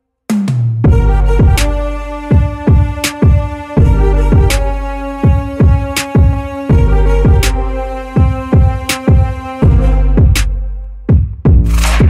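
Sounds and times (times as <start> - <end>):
deep kick drums: 0.3 - 12.0
held synth chords: 0.9 - 11.1
sharp snare-like hit: 11.6 - 12.0.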